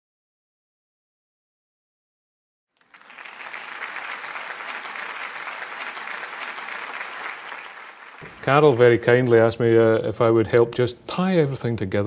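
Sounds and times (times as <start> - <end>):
audience applauding: 2.8 - 9.0.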